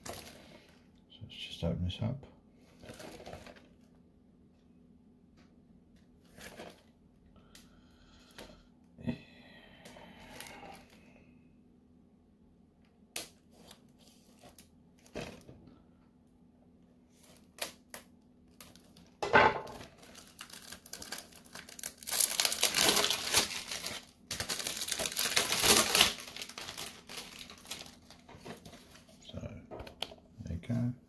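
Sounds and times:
shrink-wrap crinkling and tearing: 0.0s - 0.8s, 2.6s - 3.9s, 17.1s - 29.2s.

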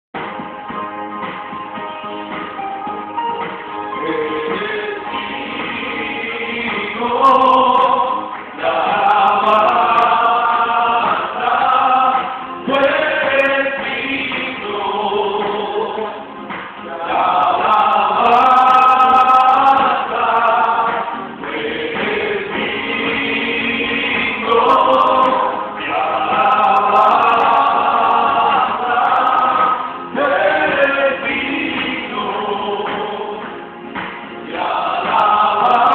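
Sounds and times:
men singing a hymn: 4.0s - 33.6s, 34.4s - 35.9s.

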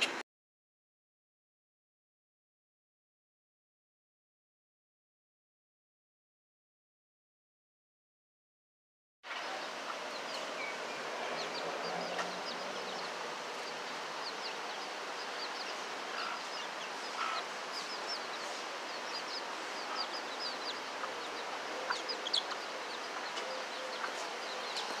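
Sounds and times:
chicks peeping: 9.3s - 25.0s
hen clucking: 9.3s - 25.0s
steady background hiss: 9.3s - 25.0s.

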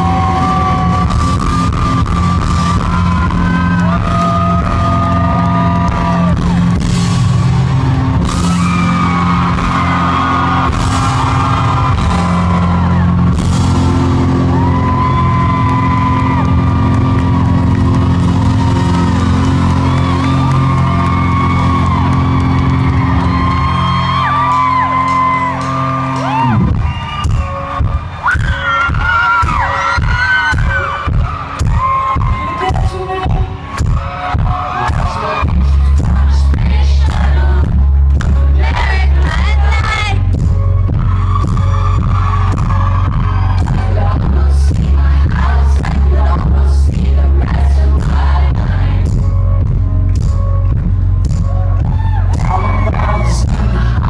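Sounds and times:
audience shouting: 0.0s - 33.1s
live rock band playing: 0.0s - 36.2s
person singing: 34.7s - 40.3s, 43.6s - 49.0s, 52.3s - 54.0s.

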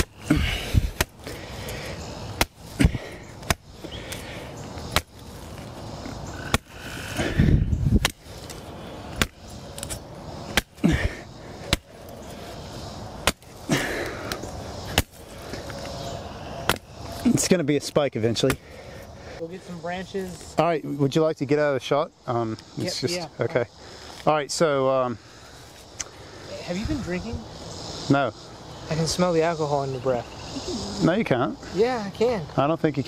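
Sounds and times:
machete chopping wooden stick: 0.8s - 1.3s, 2.4s - 4.2s, 4.9s - 5.2s, 6.4s - 6.7s, 8.0s - 11.0s, 11.6s - 11.9s, 13.2s - 13.5s, 14.2s - 15.2s, 16.6s - 16.9s.

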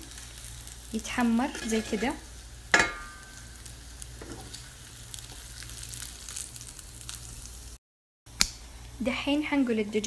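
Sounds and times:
chicken sizzling in oil: 0.0s - 7.8s.

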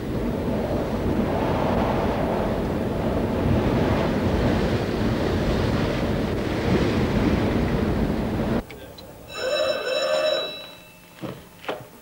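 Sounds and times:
strong wind blowing: 0.0s - 8.6s
waves breaking: 0.0s - 8.6s.

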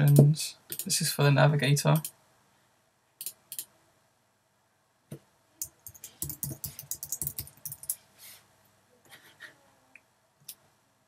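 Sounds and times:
typing on computer keyboard: 5.6s - 8.0s.

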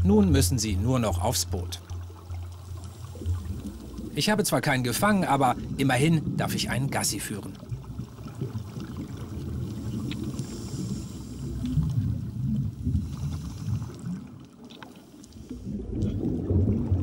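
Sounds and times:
muffled underwater rumble: 0.0s - 17.0s
faint clicks: 9.9s - 12.0s, 13.2s - 16.1s.

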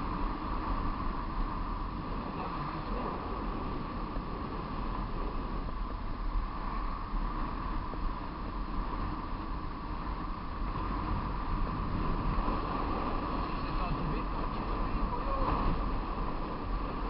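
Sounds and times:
vehicle and road rumble: 0.0s - 17.0s
wind rushing over microphone: 0.0s - 17.0s.

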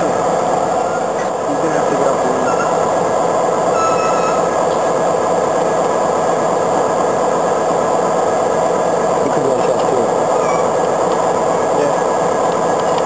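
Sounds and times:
diesel locomotive engine running: 0.0s - 13.0s
faint squeal: 0.8s - 1.3s, 2.3s - 2.9s, 3.7s - 4.8s, 10.4s - 10.7s.

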